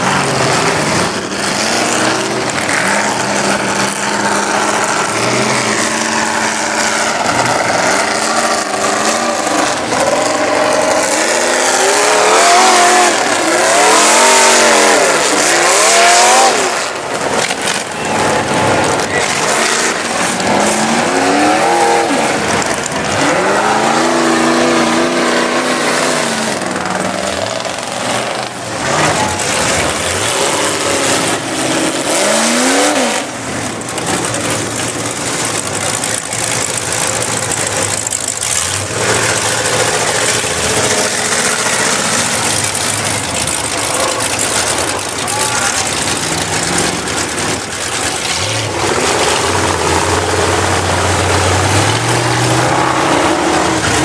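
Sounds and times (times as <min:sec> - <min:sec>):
truck engines revving hard: 0:00.0 - 0:54.0.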